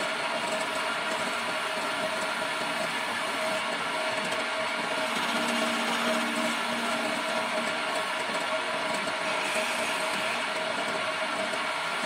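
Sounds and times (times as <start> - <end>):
wood lathe running: 0.0 - 12.0
chisel scraping spinning wood: 2.6 - 12.0.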